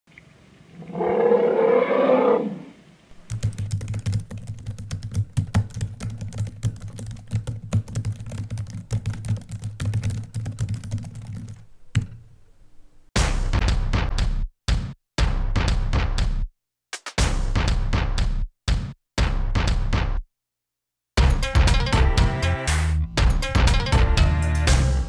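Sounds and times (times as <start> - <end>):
keyboard typing clicks: 3.2 - 12.2.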